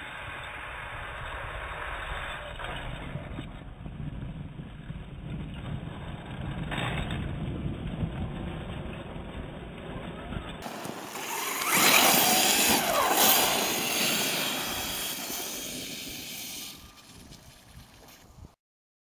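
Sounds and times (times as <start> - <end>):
electric motor whining: 10.6 - 17.0
tyres throwing snow: 10.6 - 18.2.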